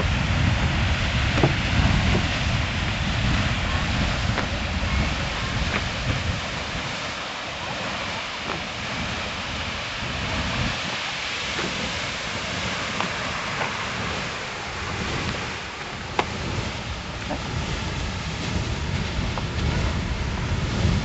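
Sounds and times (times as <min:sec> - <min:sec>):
low rumble: 0:00.0 - 0:06.8
geyser water and steam hissing: 0:00.0 - 0:21.0.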